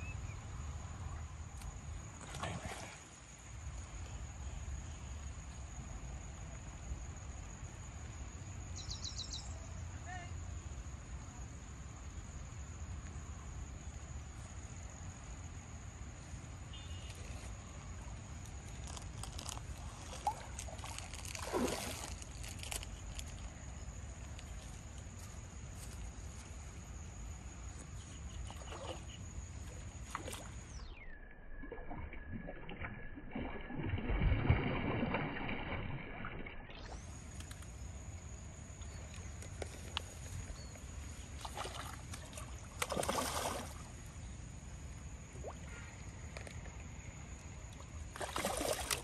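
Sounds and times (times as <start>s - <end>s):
water sloshing and splashing: 18.4s - 23.6s, 28.2s - 30.8s, 31.6s - 37.6s, 39.4s - 44.1s, 47.6s - 49.0s.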